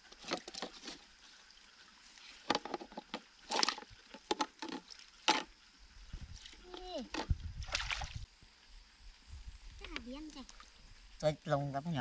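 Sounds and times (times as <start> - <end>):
water sloshing: 0.0 - 5.6
water splashing and dripping: 0.0 - 8.3.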